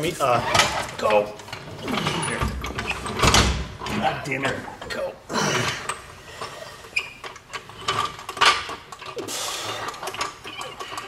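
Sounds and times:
metal clicks knocks and scrapes: 5.8 - 11.0.

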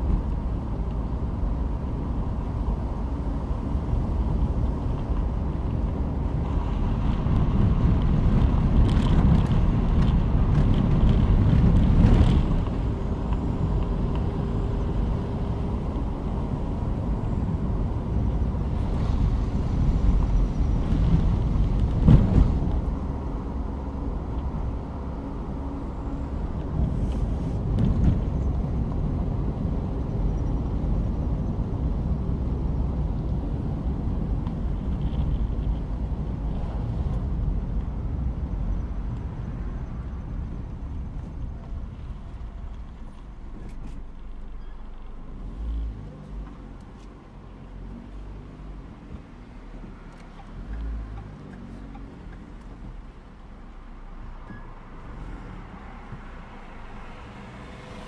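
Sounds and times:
car engine and tyre rumble: 0.0 - 58.0
wind: 0.0 - 58.0
knocks and bumps: 21.8 - 22.9.

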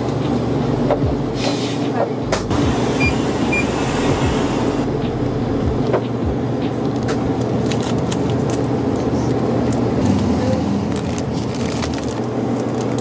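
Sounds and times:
low rumbling background noise: 0.0 - 13.0
plastic wrapper crinkling: 7.0 - 9.8, 10.9 - 13.0.

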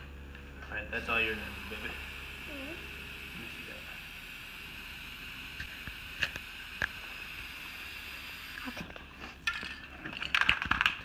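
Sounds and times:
spray paint can hissing: 4.2 - 8.7.

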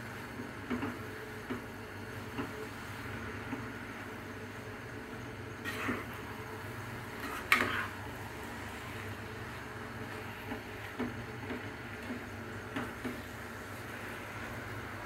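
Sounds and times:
spatula scraping frying pan: 5.6 - 6.3, 7.0 - 9.0.

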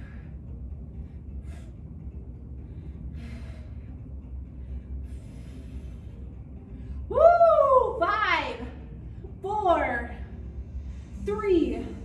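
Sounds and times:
woman breathing hard: 0.0 - 7.1
steady low hum: 0.0 - 12.0.

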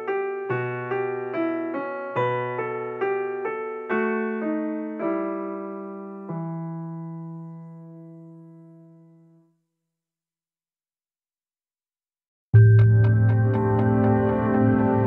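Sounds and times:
piano notes: 0.0 - 9.4, 12.6 - 15.0.

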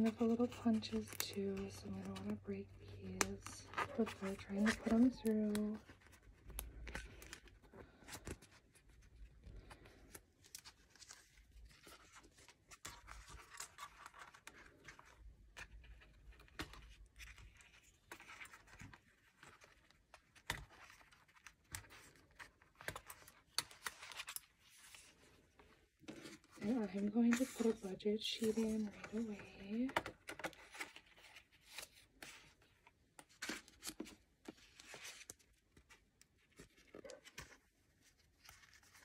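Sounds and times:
plastic envelopes rustling: 0.0 - 39.0.

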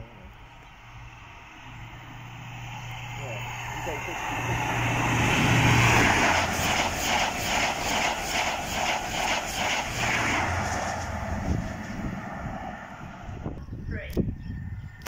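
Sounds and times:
diesel train engine drone: 0.0 - 15.0
train wheels clattering: 5.0 - 12.0.

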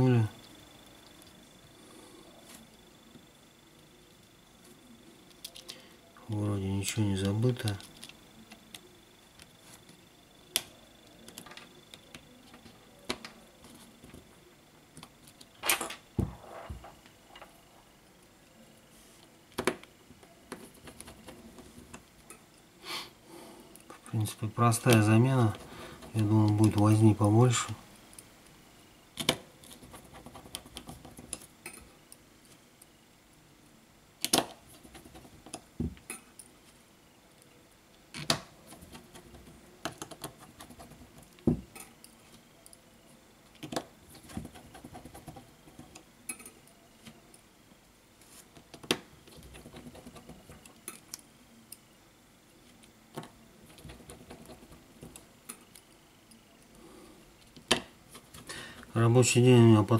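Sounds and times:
quiet handling noise: 4.2 - 22.6, 23.8 - 28.3.

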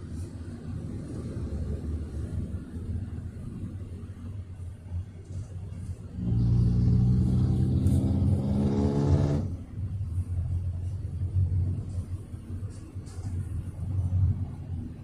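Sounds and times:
road rumble inside car: 0.0 - 15.0
engine drone: 4.6 - 15.0.

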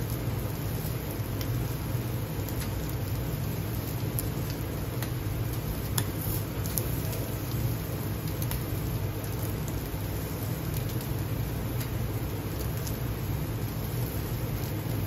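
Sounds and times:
gas grill low rush: 0.0 - 15.0
sharp crackles and pops: 0.0 - 15.0
skewers sizzling on grill: 0.0 - 15.0.

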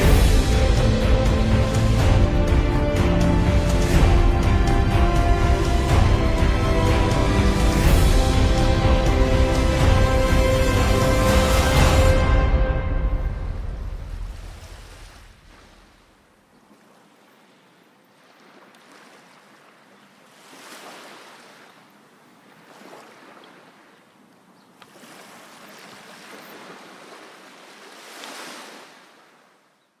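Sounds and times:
background music: 0.0 - 14.8
waves washing ashore: 0.0 - 29.7.

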